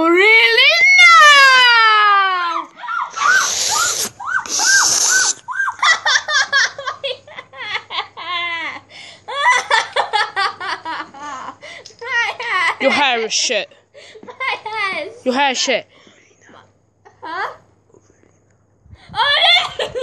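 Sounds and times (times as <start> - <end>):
girl laughing hard: 2.9 - 11.6, 19.1 - 20.0.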